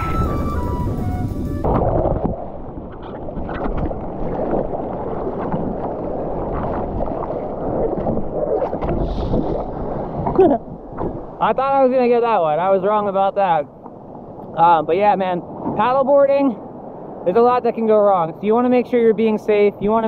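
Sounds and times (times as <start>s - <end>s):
background music: 0.0s - 1.7s
surf water splashing: 0.0s - 20.0s
wind buffeting microphone: 0.0s - 20.0s.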